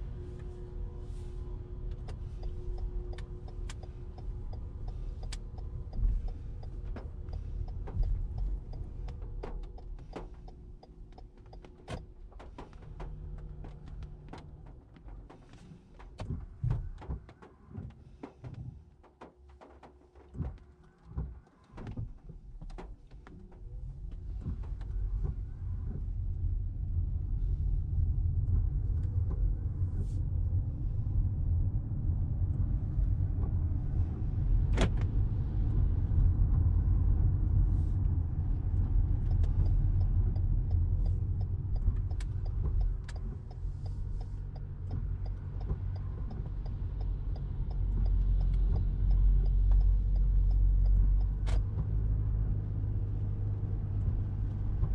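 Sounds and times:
tyre road rumble: 0:00.0 - 0:54.9
light ticks: 0:01.9 - 0:26.0, 0:38.0 - 0:53.2.

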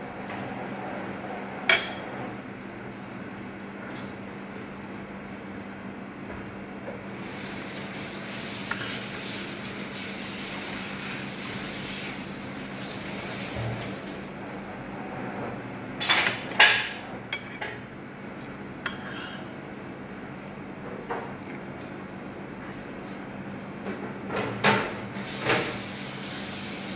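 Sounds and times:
water running: 0:07.1 - 0:14.5, 0:25.2 - 0:26.9.

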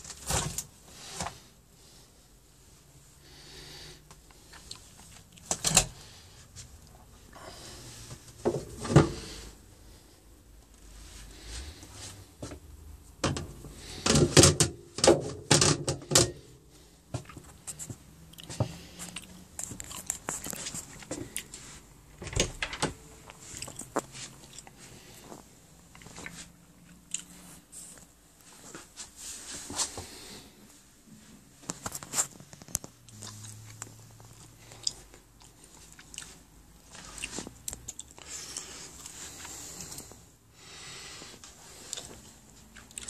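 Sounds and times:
doors and cabinets knocking and clattering: 0:13.2 - 0:16.4, 0:22.2 - 0:23.0.

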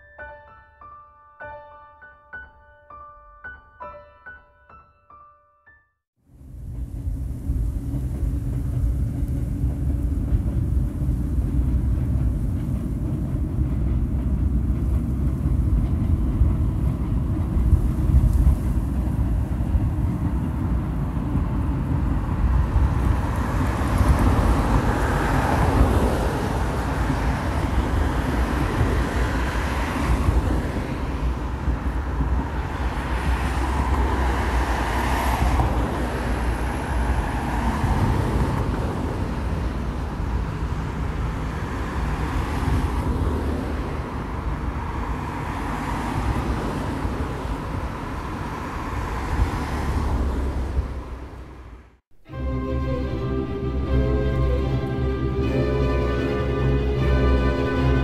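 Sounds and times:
highway traffic passing: 0:06.2 - 0:58.0.

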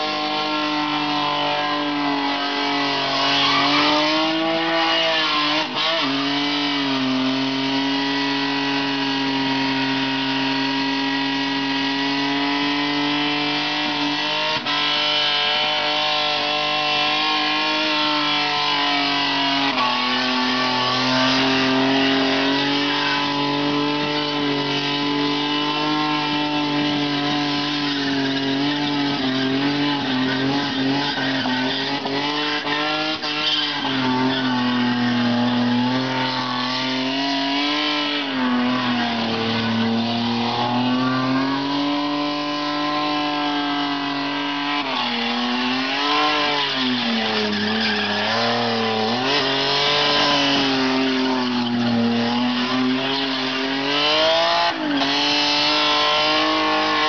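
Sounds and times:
car engine at high revs: 0:00.0 - 0:57.0
tyres squealing: 0:17.2 - 0:57.0.

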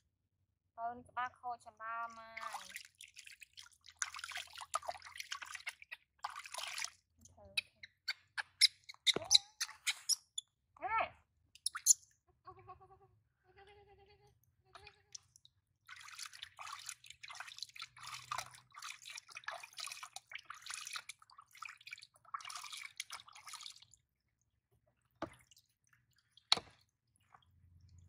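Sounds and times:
water splashing in plastic basin: 0:02.3 - 0:07.0, 0:14.8 - 0:24.0, 0:25.0 - 0:28.0.

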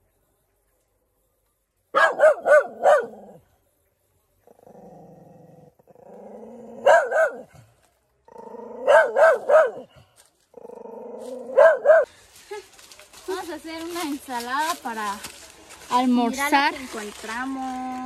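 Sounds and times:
dog barking: 0:01.9 - 0:03.4, 0:06.8 - 0:07.6, 0:08.8 - 0:10.0, 0:11.5 - 0:12.1.

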